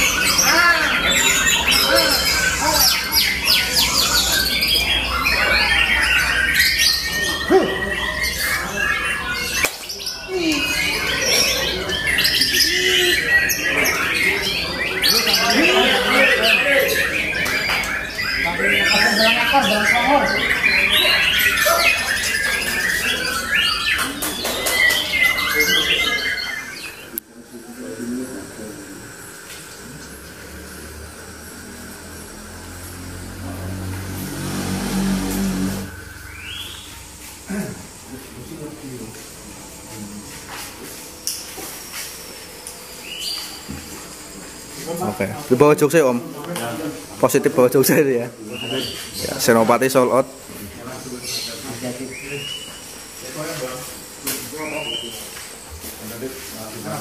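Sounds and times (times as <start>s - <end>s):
bird singing whistles and chatter: 0.0s - 27.2s, 31.3s - 37.1s, 41.3s - 46.1s, 47.2s - 55.4s
bird singing whistled phrases: 35.9s - 36.9s.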